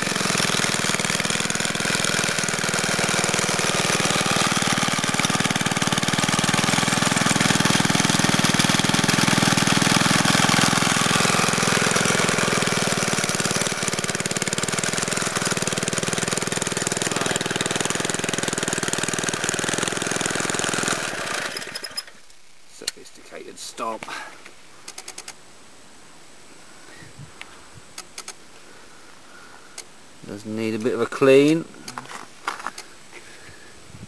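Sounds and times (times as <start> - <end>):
lawn edger engine running: 0.0 - 22.2.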